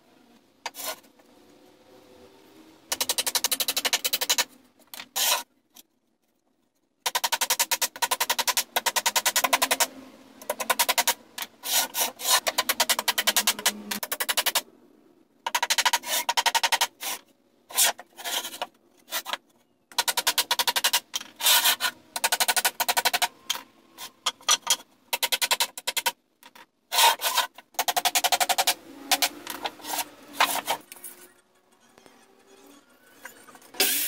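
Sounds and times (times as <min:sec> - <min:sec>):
sandpaper scraping wood: 0:00.7 - 0:01.1, 0:05.1 - 0:05.5, 0:11.6 - 0:13.6, 0:17.0 - 0:19.4, 0:21.4 - 0:22.0, 0:26.9 - 0:27.5, 0:28.5 - 0:30.8.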